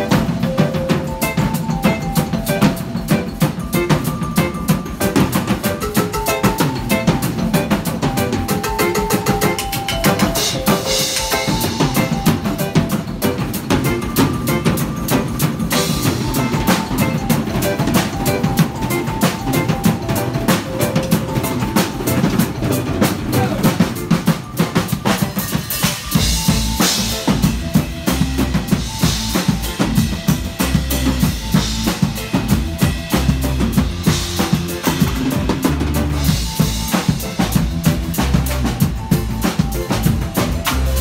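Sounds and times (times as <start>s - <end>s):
drum kit playing fast beat: 0.0s - 41.0s
deep bass notes: 26.2s - 41.0s.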